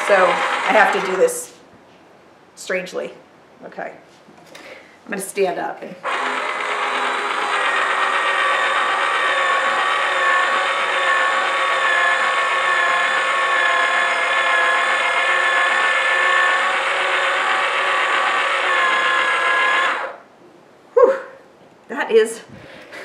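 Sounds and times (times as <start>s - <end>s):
small electric motor whining: 0.0s - 1.3s, 6.0s - 20.2s.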